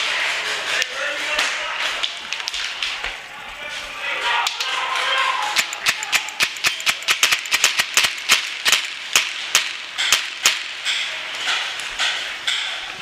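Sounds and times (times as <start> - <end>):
paintball markers firing: 5.4 - 10.9.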